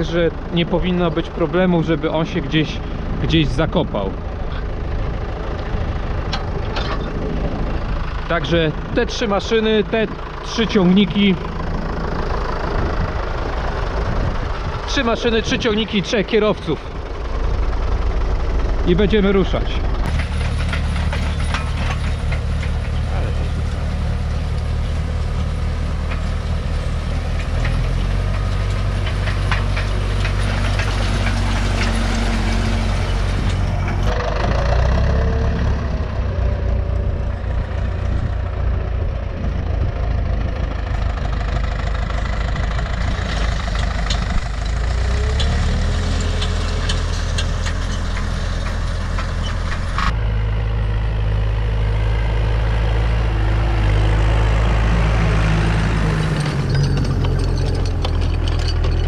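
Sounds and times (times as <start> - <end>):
diesel tractor engines running: 0.0 - 59.0
clicks and rattles: 20.0 - 23.8, 27.2 - 34.2, 43.1 - 50.1, 55.9 - 59.0.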